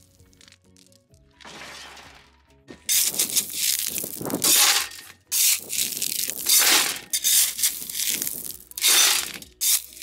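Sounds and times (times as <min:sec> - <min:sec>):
gravel stones crunching and rattling: 0:00.0 - 0:10.0
shovel scraping into gravel: 0:02.9 - 0:10.0.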